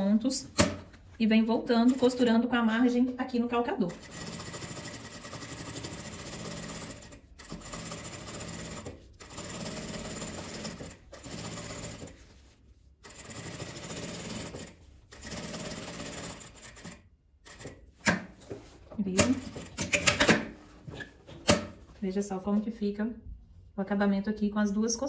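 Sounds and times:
sewing machine stitching: 3.8 - 12.2, 13.0 - 18.2.

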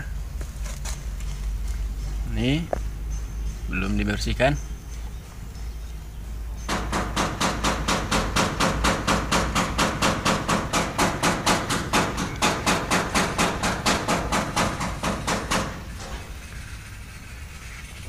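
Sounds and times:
rapid sharp knocking: 6.7 - 15.9.

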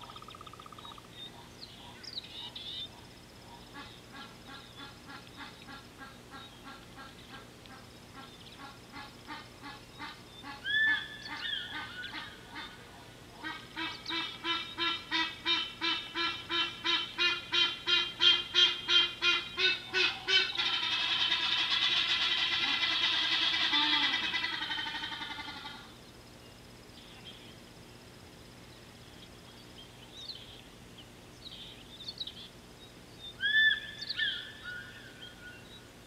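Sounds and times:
steady hiss: 3.0 - 19.9
honking animal calls: 13.4 - 25.9.

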